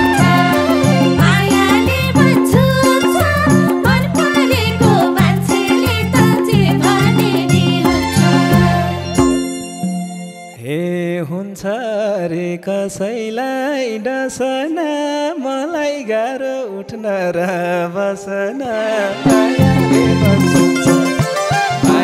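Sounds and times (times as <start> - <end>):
band with drums: 0.0 - 10.3, 19.3 - 22.0
man singing into a microphone: 10.6 - 21.0, 21.6 - 22.0.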